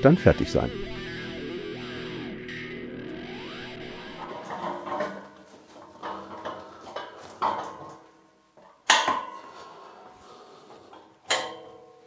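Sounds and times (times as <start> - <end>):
table rolling on casters: 3.4 - 8.0.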